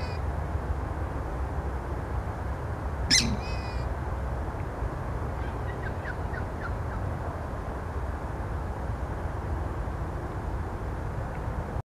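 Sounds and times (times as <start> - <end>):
low background noise: 0.0 - 11.8
bird call: 3.1 - 3.9, 5.4 - 7.0.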